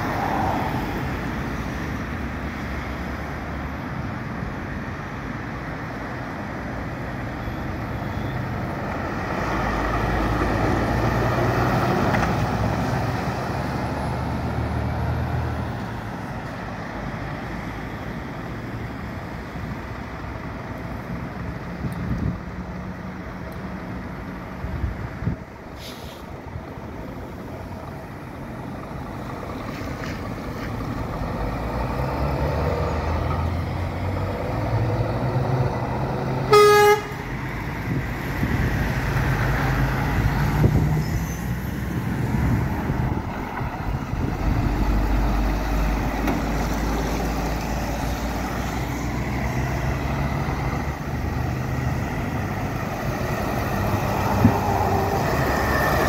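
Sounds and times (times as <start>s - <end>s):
truck engine rumbling: 0.0s - 56.0s
horn blast: 36.5s - 37.3s.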